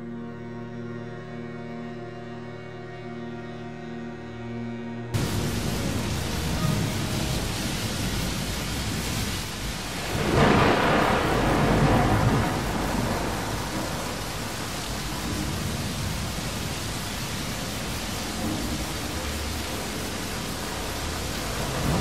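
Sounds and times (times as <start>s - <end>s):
steady rain: 5.2s - 22.0s
thunder rolling: 5.2s - 22.0s.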